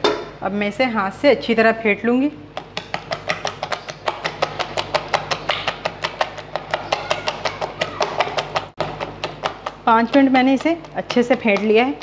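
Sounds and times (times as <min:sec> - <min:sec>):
hand slapping wet batter: 0:02.6 - 0:12.0.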